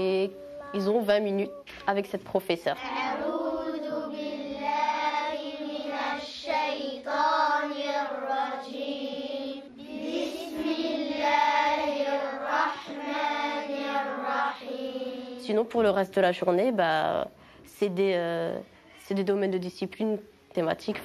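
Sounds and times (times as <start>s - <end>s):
children chanting in unison: 2.8s - 15.5s.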